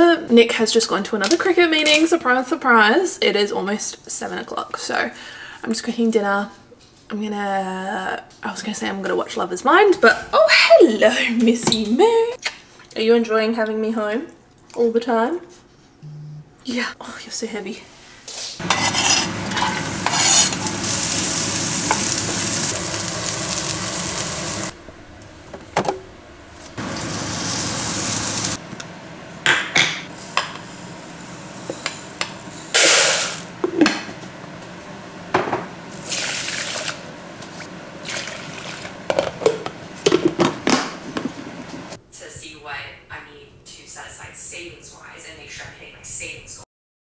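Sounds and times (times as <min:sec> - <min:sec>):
bowls clinking and knocking: 0:18.6 - 0:20.8
onion sizzling in hot oil: 0:18.6 - 0:24.8, 0:26.8 - 0:28.6, 0:30.1 - 0:33.6, 0:35.9 - 0:40.0.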